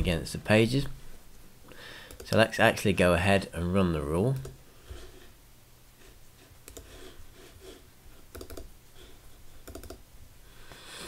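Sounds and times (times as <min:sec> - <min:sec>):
computer mouse clicks: 0:02.0 - 0:02.4, 0:06.6 - 0:07.0, 0:08.3 - 0:08.7, 0:09.6 - 0:10.0.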